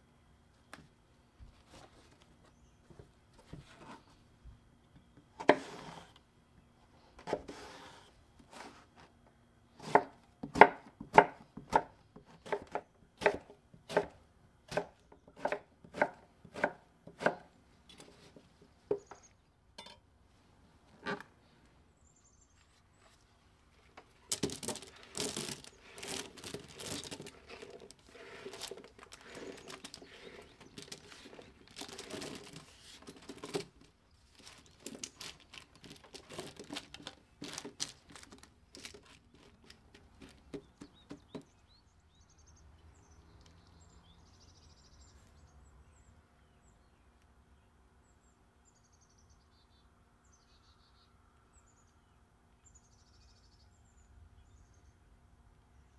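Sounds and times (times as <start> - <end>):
paper crinkling: 22.7 - 40.6.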